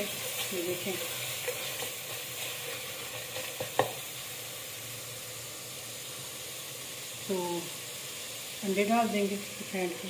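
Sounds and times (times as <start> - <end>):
spatula stirring in pot: 0.0 - 4.1
masala sizzling in oil: 0.0 - 10.0.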